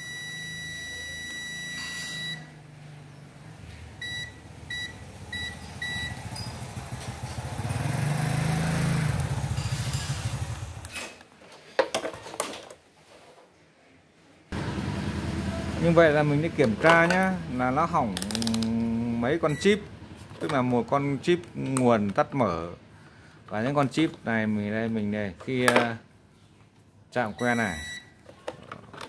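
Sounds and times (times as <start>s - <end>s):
multimeter beeping: 0.0s - 2.5s, 4.0s - 6.5s, 19.4s - 19.8s, 27.3s - 28.2s.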